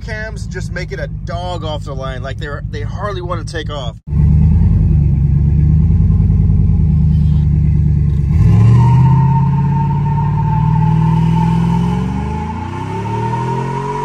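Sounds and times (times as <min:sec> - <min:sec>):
truck engine accelerating hard: 0:04.1 - 0:14.0.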